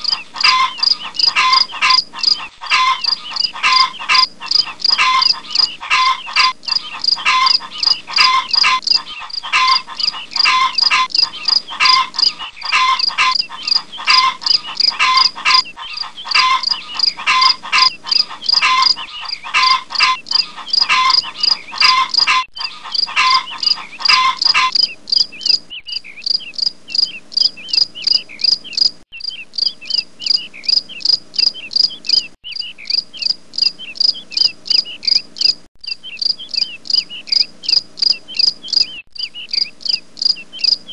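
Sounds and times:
lower repeating call: 0.0 - 25.4
insect chirping: 0.0 - 40.9.

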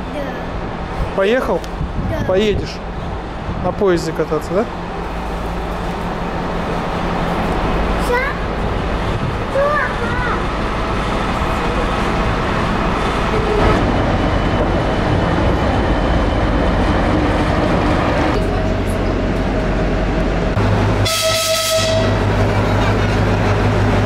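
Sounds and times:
train rumbling: 0.0 - 24.0
train horn blast: 21.0 - 22.3.

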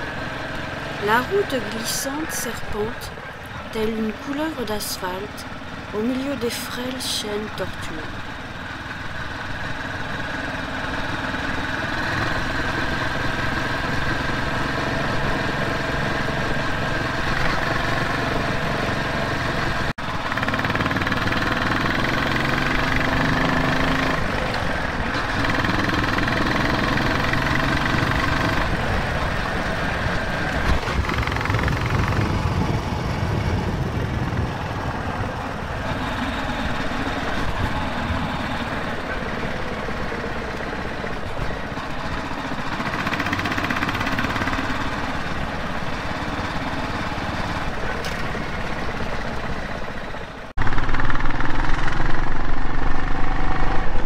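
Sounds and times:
motorcycle engine revving: 7.3 - 54.0.

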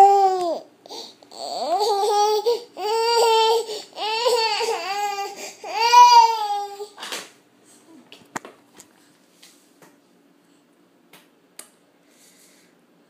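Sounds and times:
toddler crying: 0.0 - 7.0.

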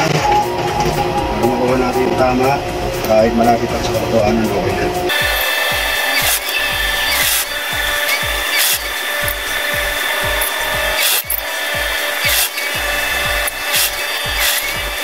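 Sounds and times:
industrial sewing machine running: 0.0 - 15.0
low thumps: 0.0 - 15.0.

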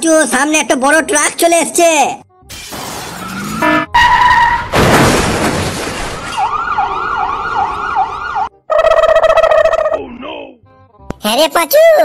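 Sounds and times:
loud crash: 2.5 - 6.6
vehicle horn: 3.6 - 4.5
siren yelping: 6.3 - 10.0.

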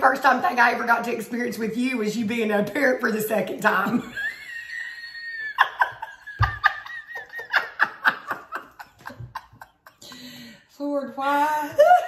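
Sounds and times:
women laughing: 3.9 - 10.2.

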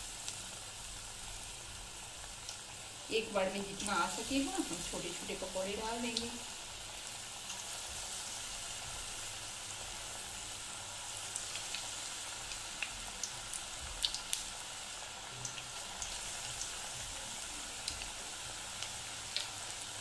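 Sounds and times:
deep-frying sizzle: 0.0 - 20.0
oil popping and crackling: 11.3 - 14.7, 15.4 - 19.8.

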